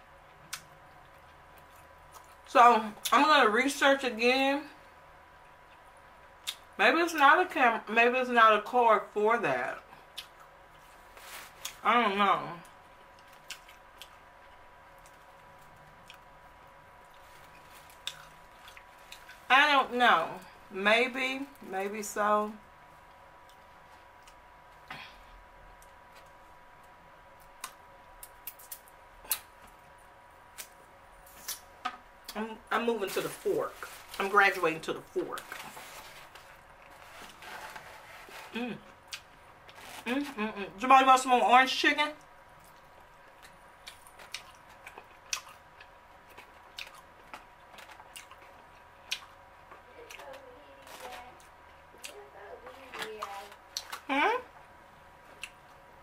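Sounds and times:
close chewing with wet mouth sounds: 0.3s - 3.1s, 12.7s - 16.3s, 17.0s - 19.4s, 42.2s - 50.4s
plastic fork scraping foam box: 36.9s - 38.6s.

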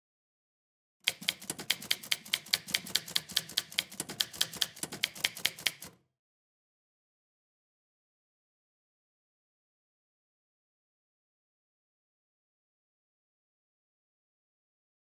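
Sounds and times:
typewriter keys striking: 1.1s - 6.0s.

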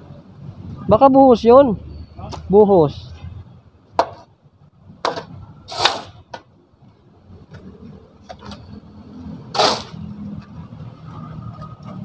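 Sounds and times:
tool scraping hard ground: 5.7s - 6.3s, 9.5s - 10.0s.

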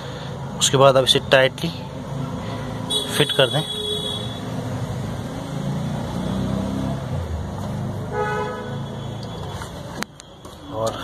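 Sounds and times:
road traffic passing: 0.0s - 11.0s
vehicle horn tooting: 2.9s - 4.4s, 8.1s - 9.5s.

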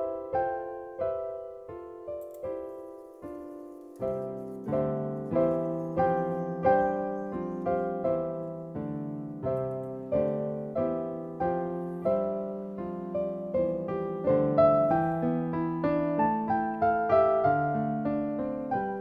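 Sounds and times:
slow piano melody: 0.0s - 19.0s.

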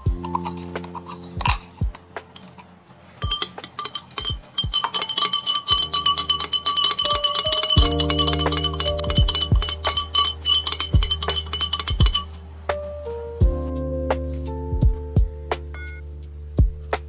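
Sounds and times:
background music: 0.0s - 17.0s
spoon clinking against glass: 3.2s - 12.4s.

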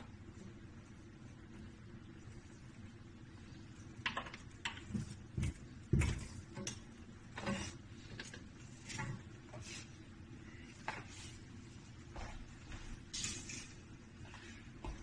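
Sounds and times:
clicks taps and knocks of pipes: 4.0s - 8.5s.

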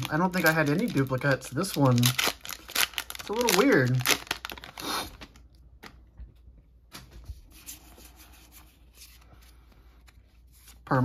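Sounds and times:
foil wrapper rustling: 0.0s - 5.4s.

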